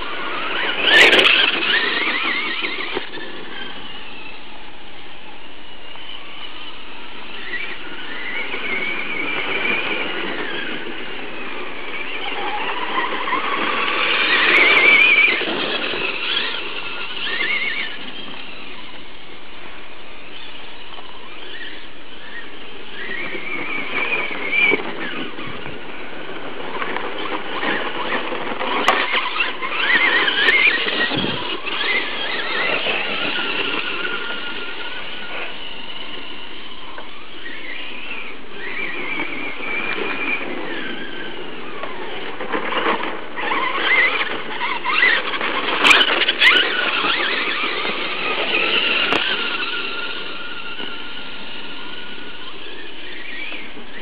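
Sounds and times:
rc trucks whining at full throttle: 0.0 - 54.0.

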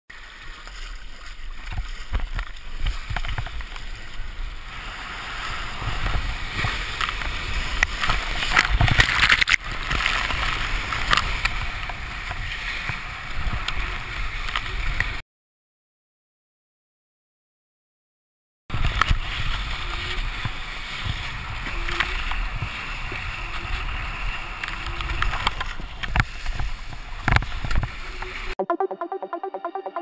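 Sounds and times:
paddle stroke splashes: 0.1 - 15.2
water splashing and rushing: 0.1 - 15.2, 18.7 - 28.6.

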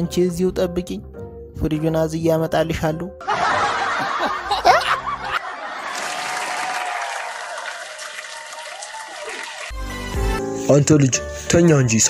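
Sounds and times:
audience laughter: 3.2 - 9.6
audience applause: 5.2 - 9.9.

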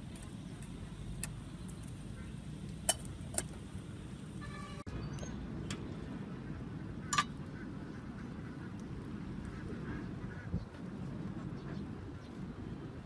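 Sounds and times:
steady low rumble: 5.2 - 13.0.

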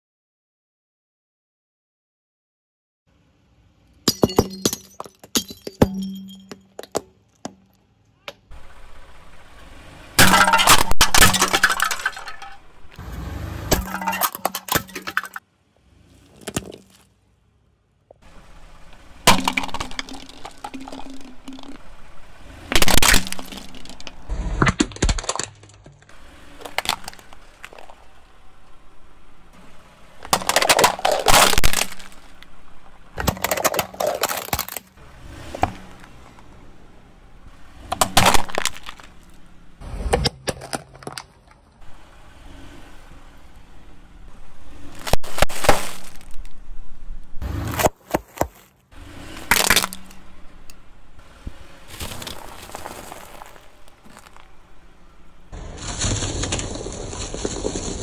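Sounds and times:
plastic toys crunching under tyre: 10.2 - 15.4, 16.2 - 17.2, 19.2 - 21.9, 22.6 - 28.7, 30.2 - 35.0, 37.8 - 41.7, 44.7 - 46.8, 47.4 - 50.2, 51.8 - 54.8, 55.5 - 58.0.

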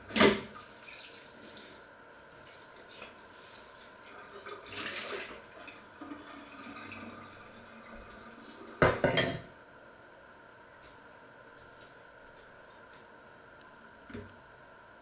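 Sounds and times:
running water splashing in sink: 0.1 - 9.0.

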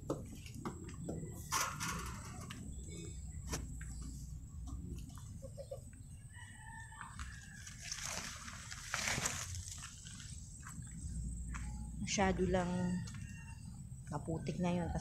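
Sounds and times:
leaves brushing: 7.6 - 10.8
footsteps on wet muddy ground: 7.6 - 11.7.

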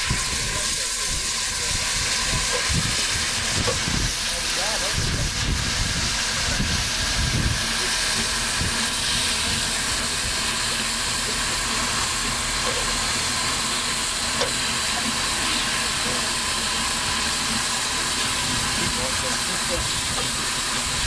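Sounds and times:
wind buffeting microphone: 0.0 - 7.8, 8.4 - 9.7
steam hissing: 0.0 - 21.0.

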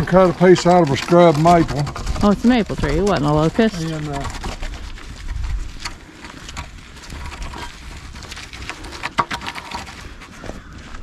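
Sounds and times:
wooden pole dragging and tapping: 0.0 - 11.0
footsteps on muddy dirt: 2.2 - 9.1, 9.8 - 11.0.

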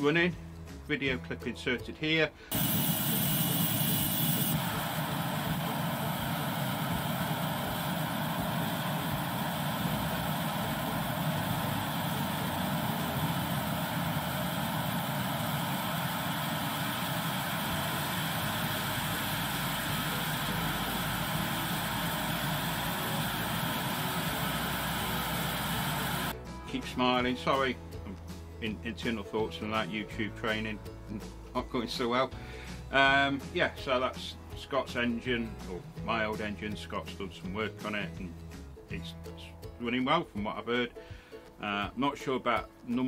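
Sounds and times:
jet engine rushing: 2.5 - 26.3
low hum: 2.6 - 26.3.

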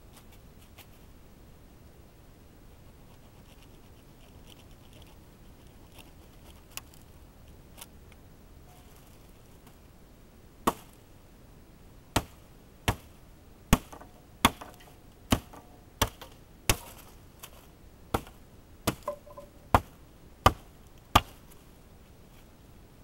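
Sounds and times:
axe chopping wood: 10.7 - 10.9, 12.2 - 13.1, 13.7 - 21.4.

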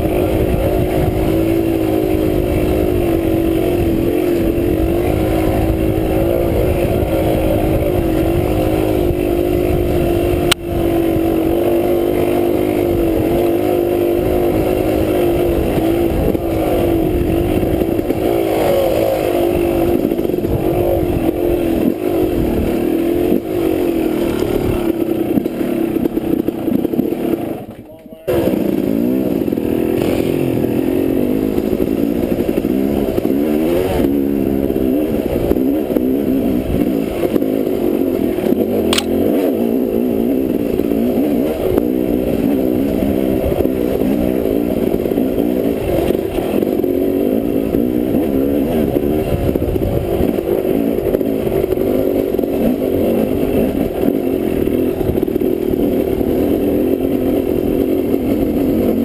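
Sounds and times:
dirt bike engine revving: 0.0 - 59.0
sharp tick: 38.9 - 39.2.

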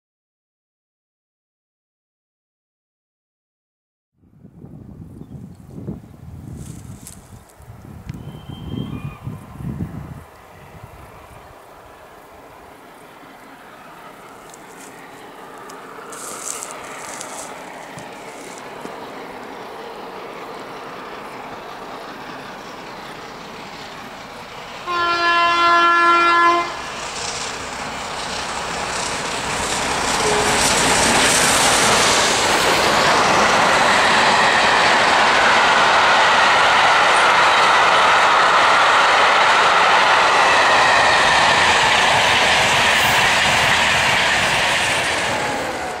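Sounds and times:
steam train passing: 4.5 - 46.0
steam whistle blast: 8.2 - 9.3, 24.8 - 26.9, 30.1 - 31.2.

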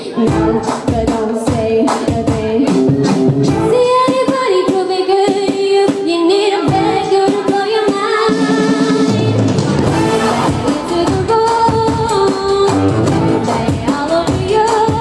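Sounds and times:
drums: 0.0 - 15.0
backing instruments: 8.2 - 15.0.

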